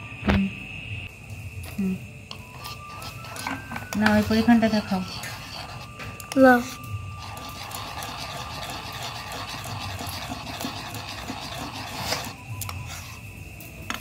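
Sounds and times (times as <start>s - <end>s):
whisk beating in steel bowl: 2.5s - 5.9s, 6.6s - 13.1s.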